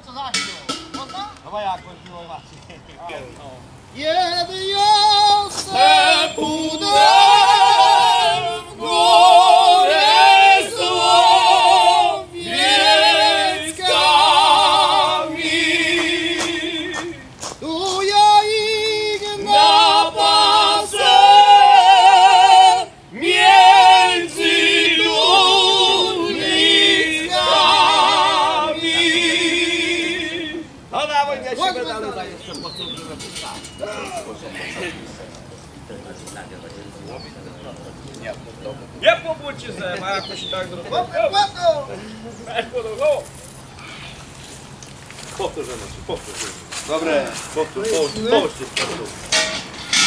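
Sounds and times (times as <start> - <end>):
people singing unaccompanied: 3.1 - 32.2.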